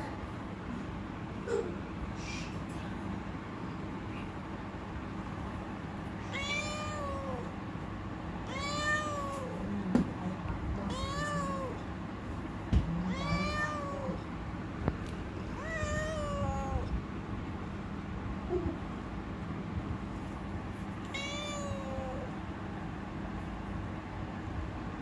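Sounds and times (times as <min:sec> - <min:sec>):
cat meowing: 0:06.2 - 0:07.5, 0:08.4 - 0:09.6, 0:10.9 - 0:11.8, 0:13.0 - 0:14.2, 0:15.6 - 0:16.9, 0:21.0 - 0:22.3.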